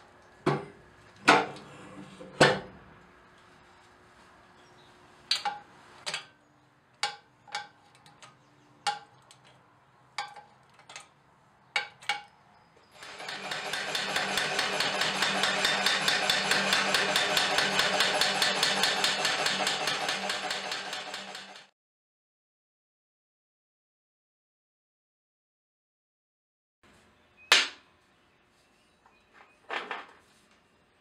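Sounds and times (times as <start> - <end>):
power hammer striking metal: 13.1 - 21.7.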